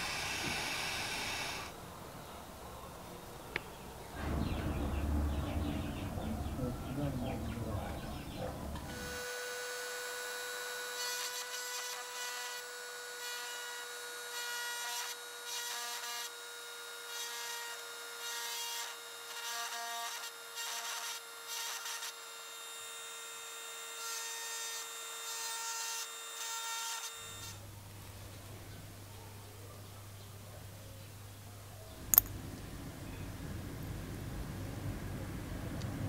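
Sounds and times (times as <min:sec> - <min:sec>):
rotary tool whining: 0:00.0 - 0:01.8, 0:07.9 - 0:24.0.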